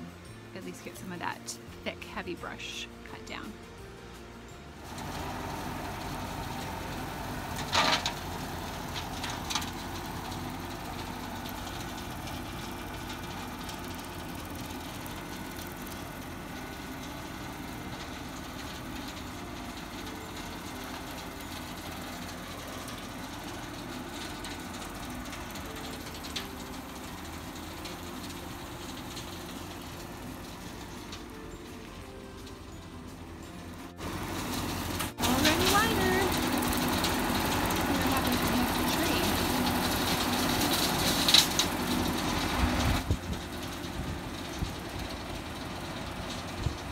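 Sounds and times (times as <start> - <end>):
tractor engine running: 0.0 - 46.9
brush cutter cutting grass: 34.0 - 43.1.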